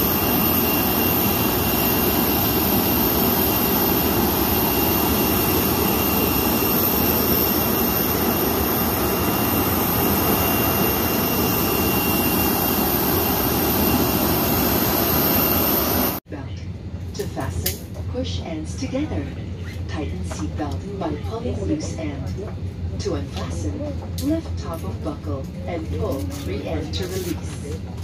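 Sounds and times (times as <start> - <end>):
jet turbine rush with whine: 0.0 - 16.2.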